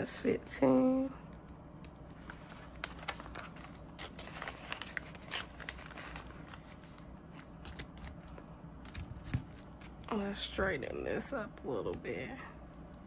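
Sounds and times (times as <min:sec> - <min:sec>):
page flipping: 0:02.1 - 0:10.0
paper bills handled: 0:02.1 - 0:10.0
plastic envelopes crinkling: 0:02.1 - 0:10.2.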